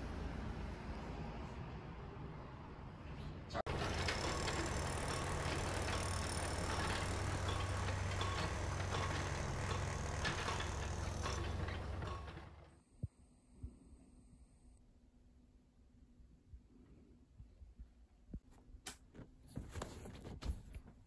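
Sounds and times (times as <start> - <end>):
steady mechanical hum: 3.6 - 14.8
clicks and rattles: 3.7 - 12.7.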